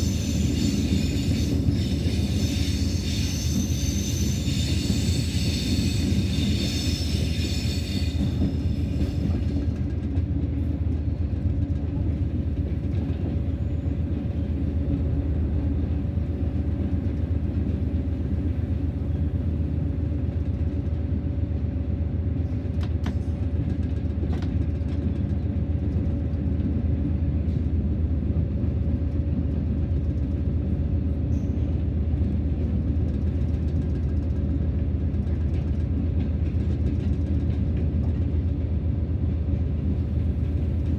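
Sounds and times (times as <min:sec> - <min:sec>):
high squeal: 0:00.0 - 0:09.4.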